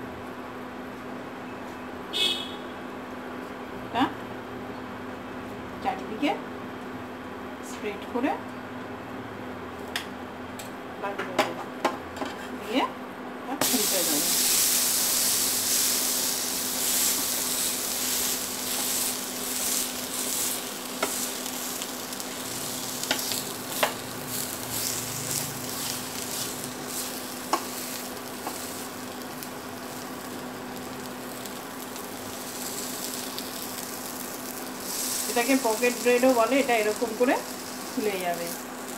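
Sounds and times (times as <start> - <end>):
butter sizzling in a pan: 13.6 - 38.9.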